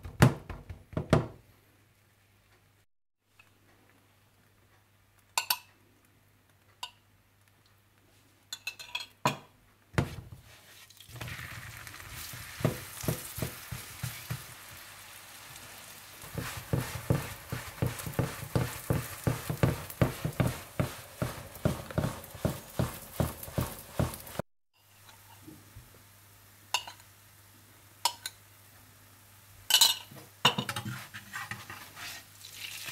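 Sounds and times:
flatbread sizzling on griddle: 0:10.0 - 0:24.4, 0:30.9 - 0:32.9
spatula knocking on pan: 0:12.2 - 0:14.6, 0:16.2 - 0:24.4.

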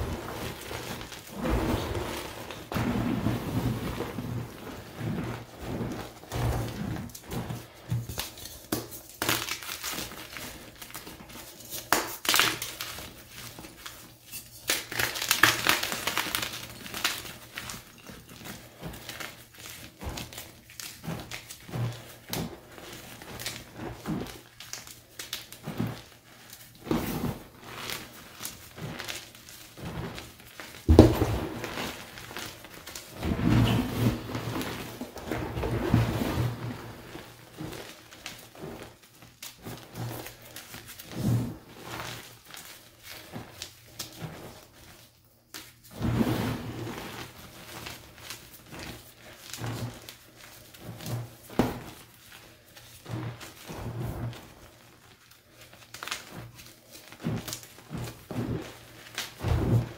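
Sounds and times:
hands crushing chalk blocks: 0:06.1 - 0:27.3.

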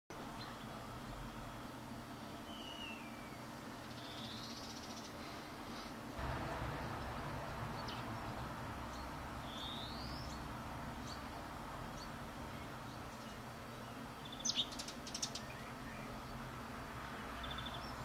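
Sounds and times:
steady low background noise: 0:00.1 - 0:18.0.

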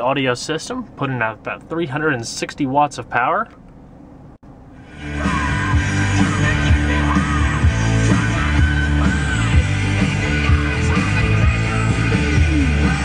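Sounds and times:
rock song on car radio: 0:04.8 - 0:13.0.

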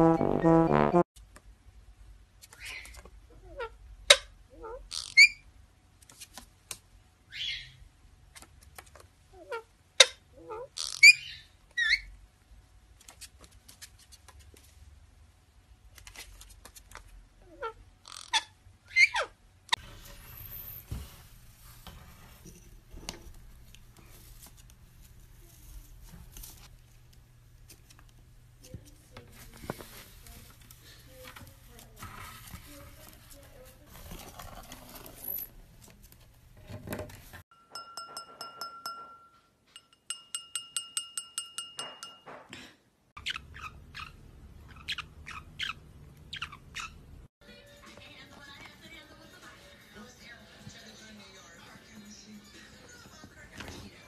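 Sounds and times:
parakeet chirping: 0:07.3 - 0:07.8, 0:09.5 - 0:12.1, 0:43.2 - 0:47.2
parrot beak clicking and scratching: 0:12.9 - 0:14.8, 0:15.9 - 0:17.2
wine glass tapped ringing: 0:37.5 - 0:42.5.

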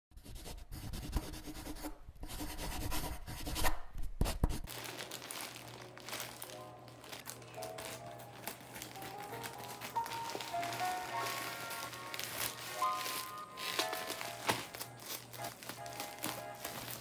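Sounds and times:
soft background music: 0:04.7 - 0:17.0.

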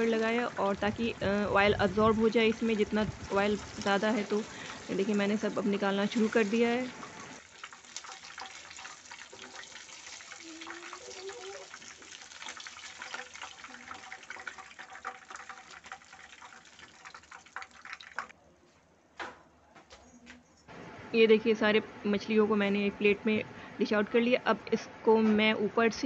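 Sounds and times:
fish sizzling in hot oil: 0:00.0 - 0:18.3.

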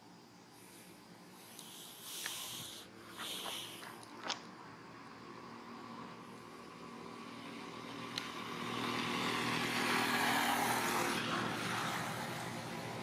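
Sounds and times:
vehicle engine passing: 0:01.3 - 0:13.0.

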